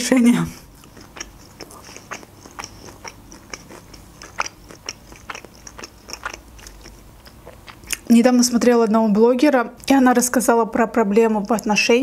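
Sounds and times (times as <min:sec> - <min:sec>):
person chewing crunchy food: 0:00.6 - 0:08.1.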